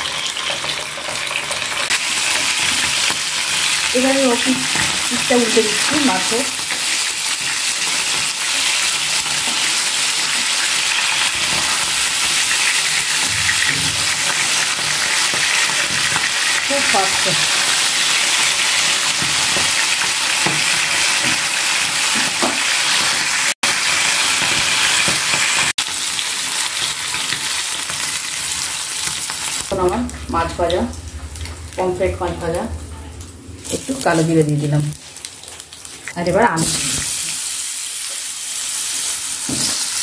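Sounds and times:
fish sizzling in oil: 0:00.0 - 0:32.6, 0:33.2 - 0:40.0
spatula turning fish: 0:02.1 - 0:23.4.

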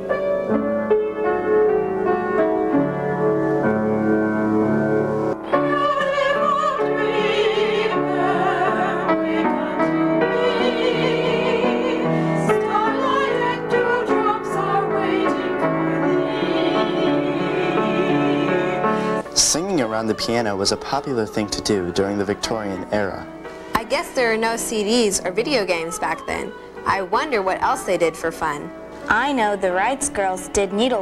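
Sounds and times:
piano accompaniment: 0:00.0 - 0:31.0
women singing operatically: 0:05.4 - 0:19.0, 0:23.8 - 0:28.6.

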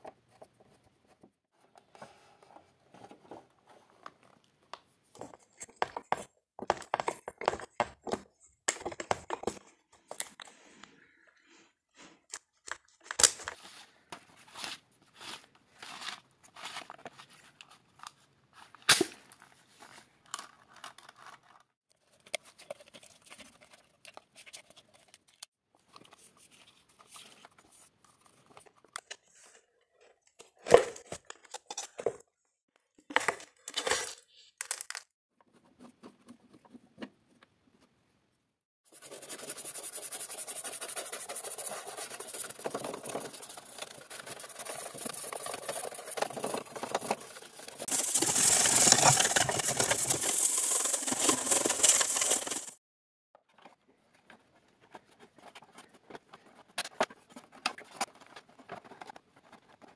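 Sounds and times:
brush scrubbing plastic housing: 0:38.9 - 0:52.7
plastic and wire clicks and scrapes: 0:42.3 - 0:52.8.

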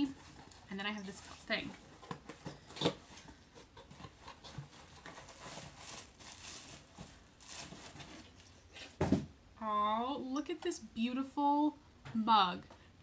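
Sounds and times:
paper packaging crinkling: 0:04.7 - 0:08.5.

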